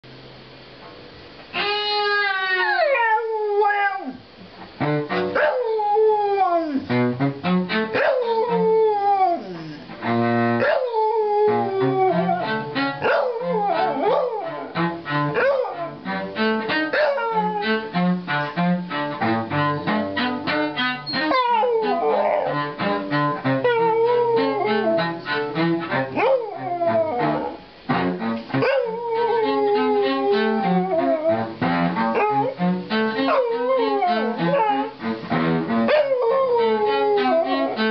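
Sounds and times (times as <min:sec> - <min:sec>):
dog howling: 0:01.6 - 0:04.2, 0:05.4 - 0:06.9, 0:07.9 - 0:09.8, 0:10.6 - 0:16.0, 0:16.9 - 0:17.9, 0:21.0 - 0:22.7, 0:23.4 - 0:25.2, 0:26.0 - 0:27.6, 0:28.6 - 0:31.5, 0:32.1 - 0:32.6, 0:33.2 - 0:35.0, 0:35.8 - 0:37.9
cello playing low notes: 0:04.6 - 0:37.9.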